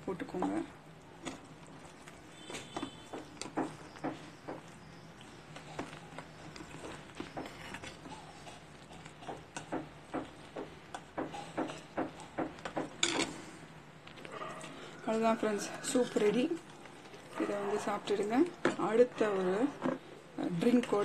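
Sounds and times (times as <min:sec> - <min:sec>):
spoon stirring in metal pot: 0:00.1 - 0:13.3.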